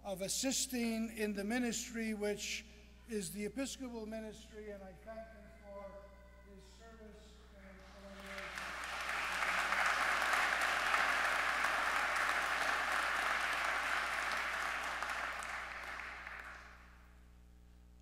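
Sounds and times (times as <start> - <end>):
congregation applauding: 7.8 - 17.0.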